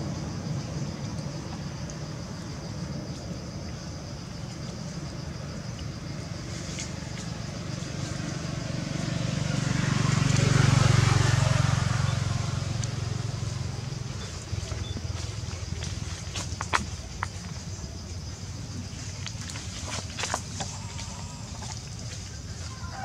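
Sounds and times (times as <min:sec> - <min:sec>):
vehicle passing by: 0:06.0 - 0:16.5.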